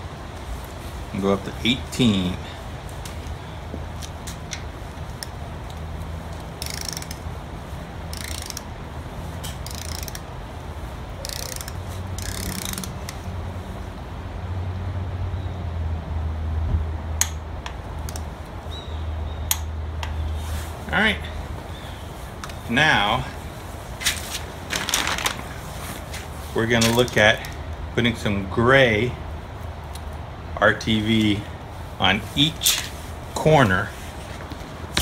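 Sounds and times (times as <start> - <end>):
torque wrench ratcheting: 6.4 - 7.3, 8.1 - 8.7, 9.4 - 10.4, 11.2 - 13.2.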